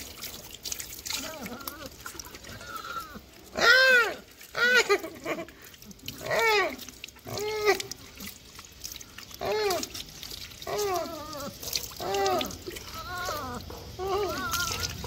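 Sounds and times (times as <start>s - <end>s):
puppy whining: 10.6s - 15.0s.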